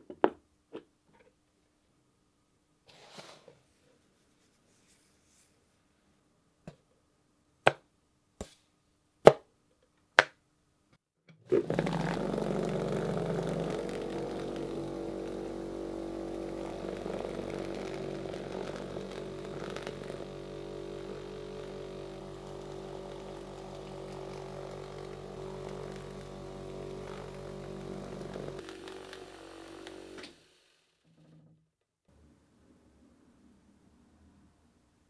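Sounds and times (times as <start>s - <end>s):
granular media rattling: 11.4s - 29.1s
electric motor hum: 11.5s - 31.4s.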